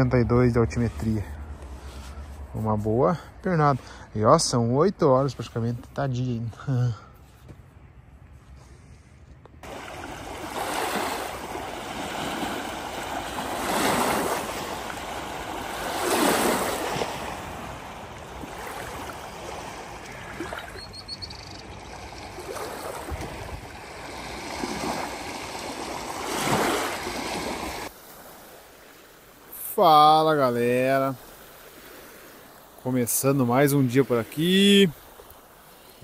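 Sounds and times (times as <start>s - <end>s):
small waves washing onto shore: 9.6s - 36.0s.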